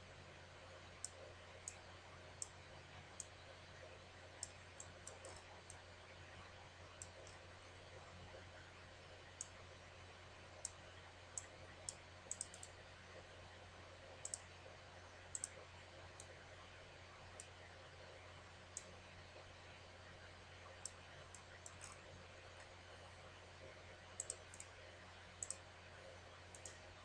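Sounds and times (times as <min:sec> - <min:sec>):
faint steady hum: 0:00.0 - 0:27.0
computer mouse clicking: 0:01.0 - 0:01.8, 0:04.4 - 0:05.8, 0:06.9 - 0:07.4, 0:10.6 - 0:10.8, 0:11.4 - 0:12.8, 0:14.2 - 0:14.5, 0:15.3 - 0:15.6, 0:16.2 - 0:16.4, 0:17.4 - 0:17.6, 0:18.7 - 0:19.0, 0:20.7 - 0:22.7, 0:24.2 - 0:24.8, 0:25.4 - 0:25.6, 0:26.5 - 0:26.8.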